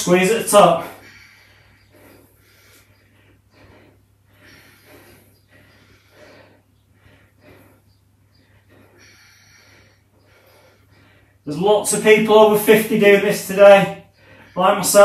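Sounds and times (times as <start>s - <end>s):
person breathing hard: 0.8s - 11.5s, 14.0s - 14.6s.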